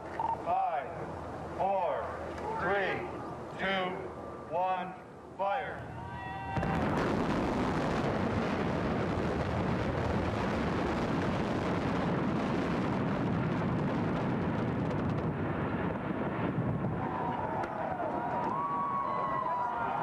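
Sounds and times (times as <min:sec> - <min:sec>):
rumble of collapsing buildings: 0:06.5 - 0:19.4.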